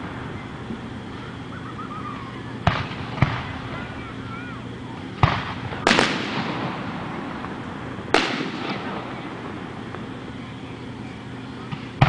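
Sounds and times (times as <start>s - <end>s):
firework shells bursting: 2.6s - 4.0s, 5.1s - 10.3s.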